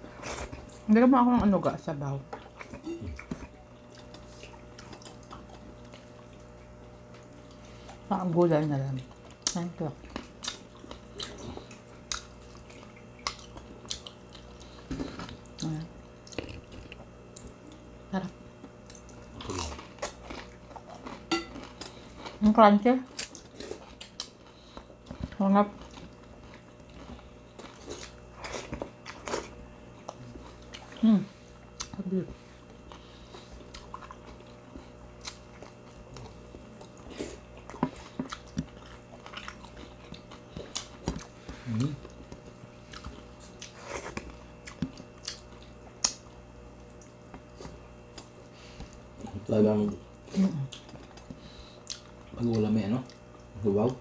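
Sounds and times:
chewing crunchy fried food: 0.0s - 0.9s, 1.5s - 54.0s
wet eating clicks and smacks: 9.3s - 14.5s, 23.1s - 31.0s, 31.8s - 32.0s, 33.6s - 49.0s, 49.9s - 54.0s.

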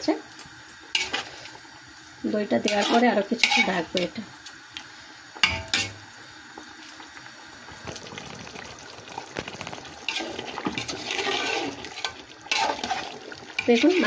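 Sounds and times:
gravy bubbling in a pot: 0.1s - 14.0s
spoon stirring gravy: 9.4s - 14.0s.

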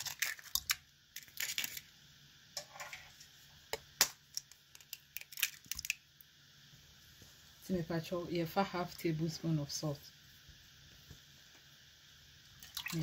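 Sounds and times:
eggs cracking on pot rim: 0.0s - 1.9s, 3.7s - 6.1s
eggshells crackling apart: 0.0s - 1.9s, 3.8s - 6.3s.

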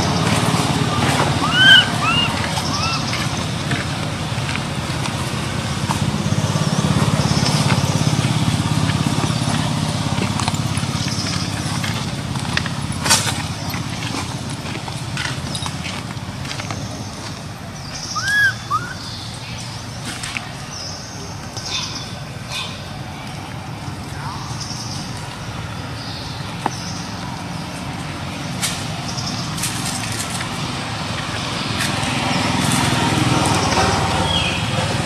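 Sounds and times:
squeaky rising and falling calls: 1.2s - 3.6s, 18.0s - 19.4s.

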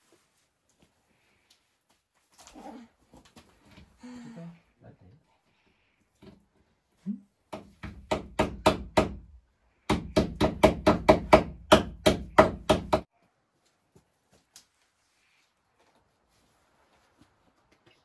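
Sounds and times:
hammer driving nails into wood: 7.5s - 9.3s, 9.9s - 13.1s.

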